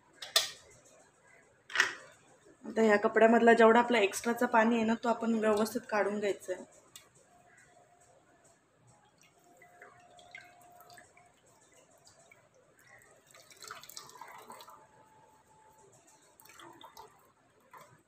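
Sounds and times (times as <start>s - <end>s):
liquid dripping and trickling: 4.2s - 18.0s.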